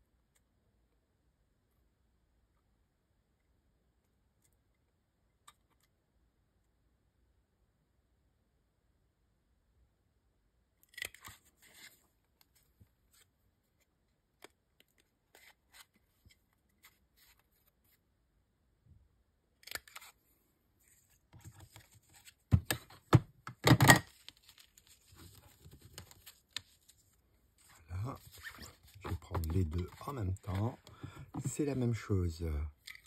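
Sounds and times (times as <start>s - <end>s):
paper and card rustling: 11.0s - 13.8s, 14.4s - 18.0s, 19.6s - 20.2s, 20.8s - 33.0s
card knocking: 22.5s - 24.0s, 28.2s - 31.8s.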